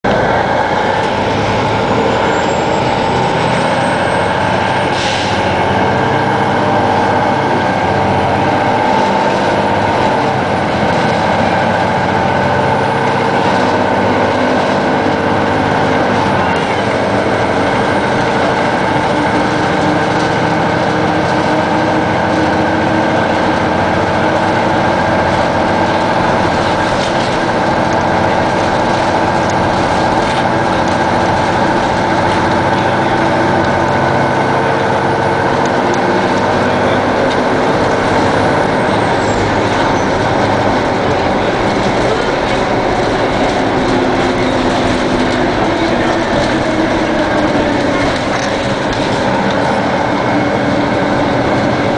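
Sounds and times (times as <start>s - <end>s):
diesel bus engine running: 0.0s - 51.9s.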